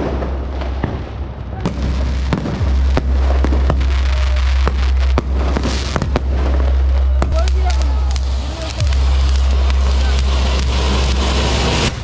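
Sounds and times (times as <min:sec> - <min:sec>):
fireworks bangs and cracks: 0:00.0 - 0:12.0
low rumble: 0:00.0 - 0:12.0.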